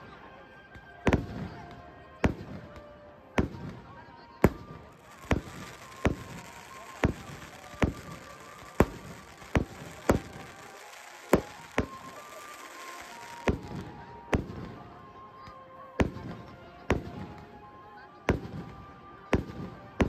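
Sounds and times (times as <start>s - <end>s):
firework shells bursting: 4.5s - 14.6s.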